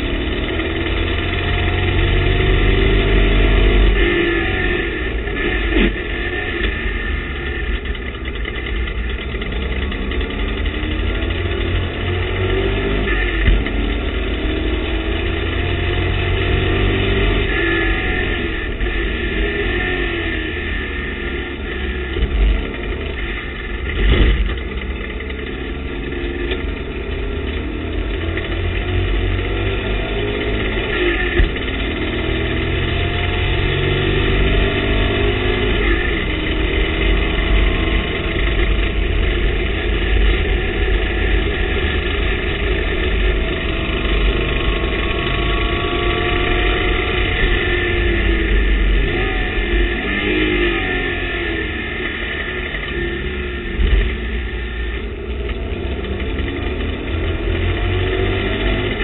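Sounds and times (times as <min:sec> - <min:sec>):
race car engine accelerating: 0:00.0 - 0:59.0.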